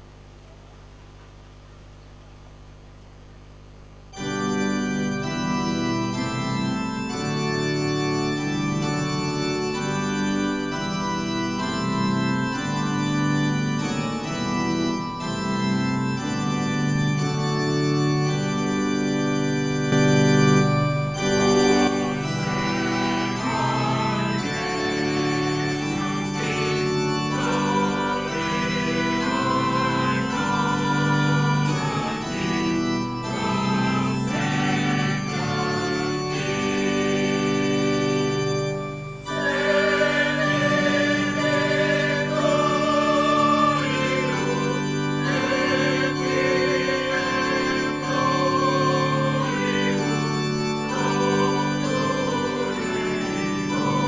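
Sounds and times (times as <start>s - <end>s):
faint hum: 0.0s - 5.1s
sustained organ chords: 3.9s - 54.0s.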